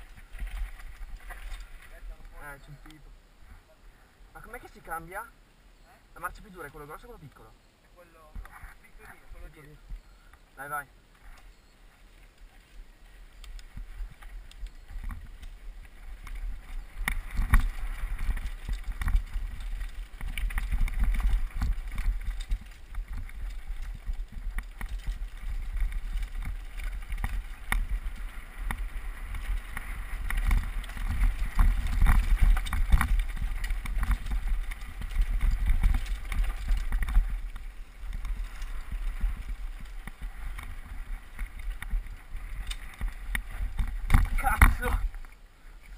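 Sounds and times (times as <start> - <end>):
mountain bike rattling over stones: 0.0 - 3.0, 10.6 - 45.9
wind rumbling on microphone: 0.0 - 3.8, 11.2 - 45.9.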